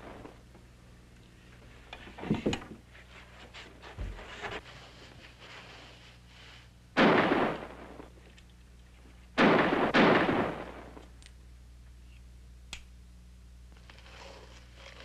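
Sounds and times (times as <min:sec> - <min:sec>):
gunshots echoing: 0:07.0 - 0:08.1, 0:09.4 - 0:11.0
light click: 0:12.7 - 0:12.9.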